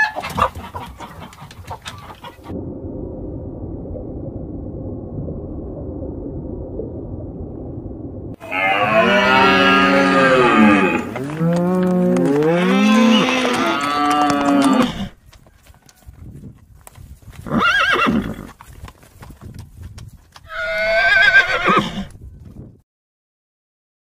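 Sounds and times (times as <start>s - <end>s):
horse whinnying: 8.4s - 15.2s, 17.4s - 18.6s, 20.5s - 22.1s.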